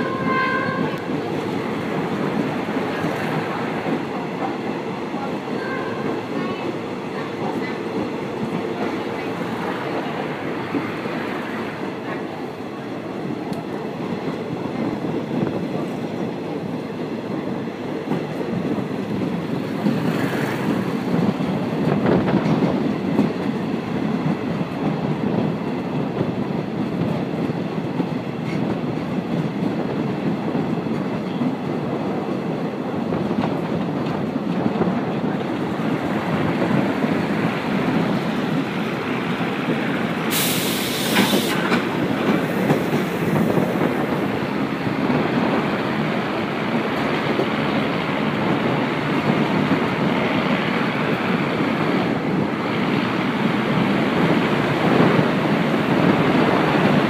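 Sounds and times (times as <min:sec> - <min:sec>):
train wheels rumbling on rails: 0:00.0 - 0:57.0
short hiss: 0:40.3 - 0:41.7.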